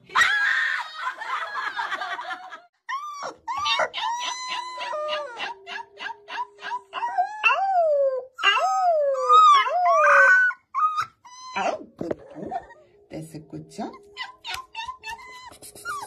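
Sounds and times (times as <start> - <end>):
puppy yipping: 2.9 - 7.6, 8.4 - 12.8, 13.9 - 16.0
puppy howling: 2.9 - 12.9, 13.9 - 16.0.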